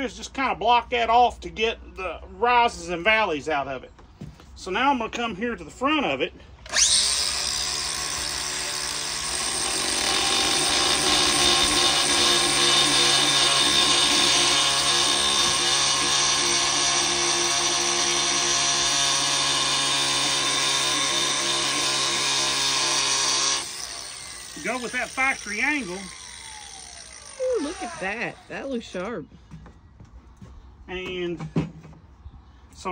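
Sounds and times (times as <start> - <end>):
angle grinder grinding metal: 6.7 - 29.1.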